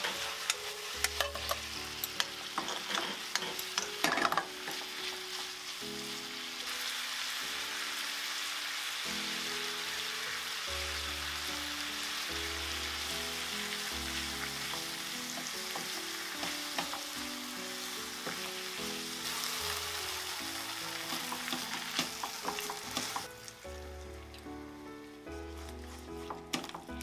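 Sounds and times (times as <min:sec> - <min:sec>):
food sizzling in a frying pan: 0:00.0 - 0:27.0
spatula scraping a pan: 0:02.4 - 0:03.9.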